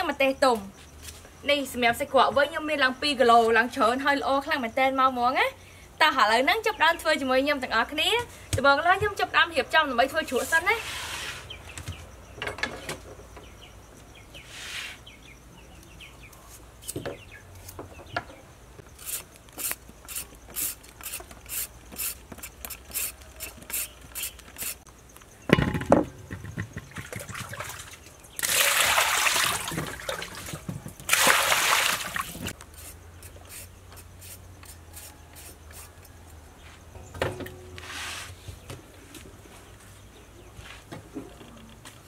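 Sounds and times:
carrot peeler scraping: 0:19.0 - 0:24.9, 0:32.6 - 0:36.1
water pouring: 0:27.1 - 0:30.5, 0:31.1 - 0:32.5.

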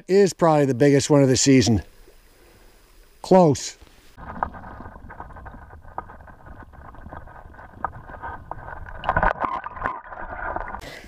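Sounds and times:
muffled underwater stream rush: 0:04.0 - 0:10.9
water sloshing: 0:04.2 - 0:10.9.

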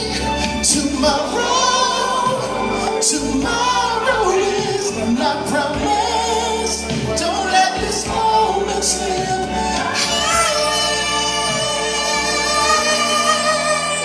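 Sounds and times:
backing track with bass line: 0:00.0 - 0:14.0
man singing soul ballad: 0:00.0 - 0:14.0.

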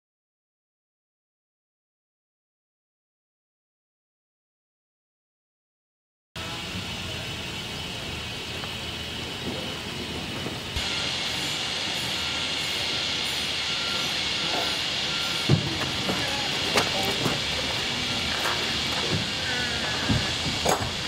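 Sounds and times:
steam hissing: 0:06.4 - 0:21.0.

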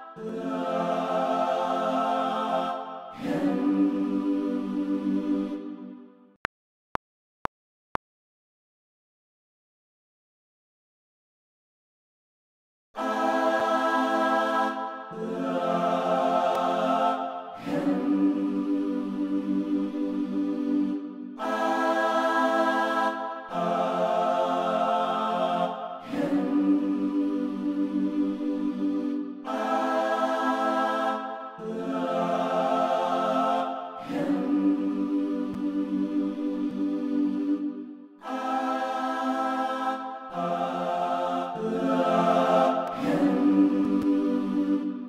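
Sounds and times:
choir singing held chords: 0:00.0 - 0:06.2, 0:13.0 - 0:45.0.

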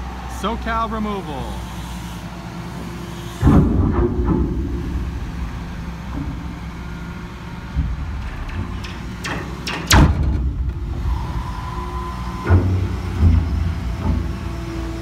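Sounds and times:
excavator diesel engine running: 0:00.0 - 0:15.0
hydraulic shear crunching steel: 0:01.5 - 0:15.0
quiet knocks: 0:03.4 - 0:10.9.

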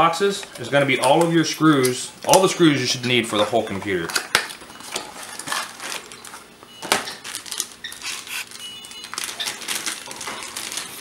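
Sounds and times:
plastic bags crinkling: 0:03.6 - 0:11.0.

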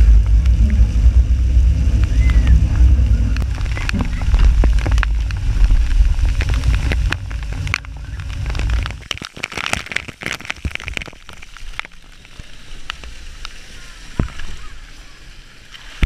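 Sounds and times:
crackling splashes and bubbling: 0:00.0 - 0:16.0
water rushing on slide: 0:00.0 - 0:16.0
water trickling: 0:00.0 - 0:16.0.

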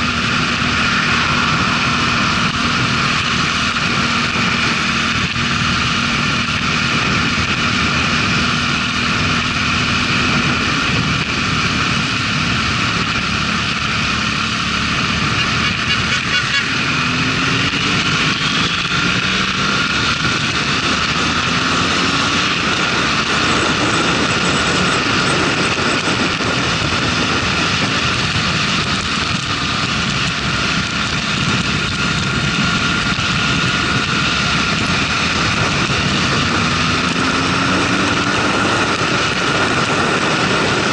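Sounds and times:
motorcycle engine accelerating: 0:00.0 - 0:40.9
wind and road noise: 0:00.0 - 0:40.9.

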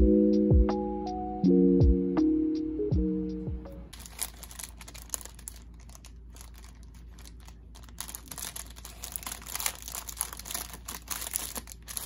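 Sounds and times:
plastic bags crinkling: 0:04.0 - 0:12.0.

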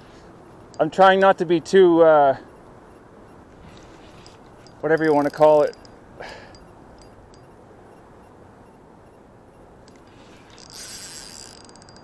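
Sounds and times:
steady low hiss: 0:00.0 - 0:11.6
rustle: 0:00.0 - 0:12.0
faint reel clicks: 0:02.5 - 0:08.1, 0:09.8 - 0:12.0.

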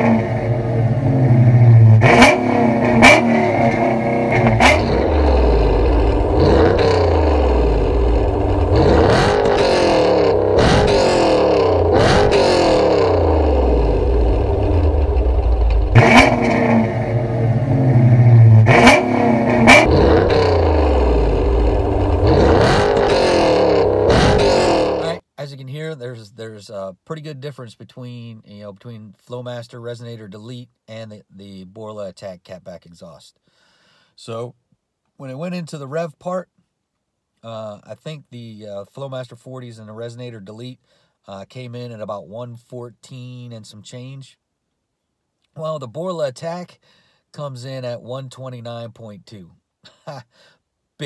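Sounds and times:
car engine revving: 0:00.0 - 0:25.2.

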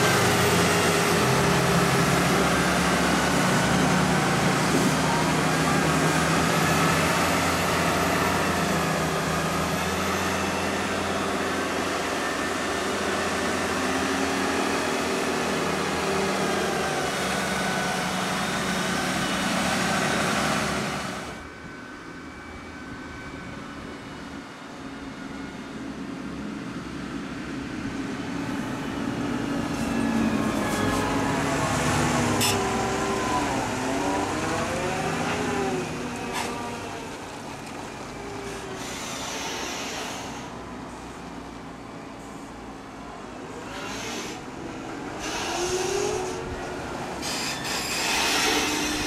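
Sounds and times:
distant tractor engine: 0:00.0 - 0:21.5
tractor diesel engines under load: 0:00.0 - 0:49.0.

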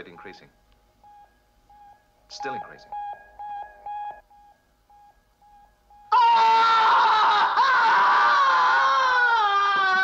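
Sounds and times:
man screaming in agony: 0:06.1 - 0:10.0.

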